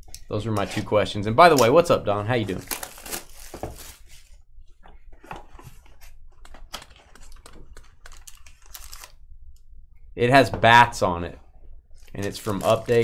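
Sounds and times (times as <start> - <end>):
cards and wrappers rustling: 0.6 - 4.4, 5.1 - 9.2, 12.0 - 13.0.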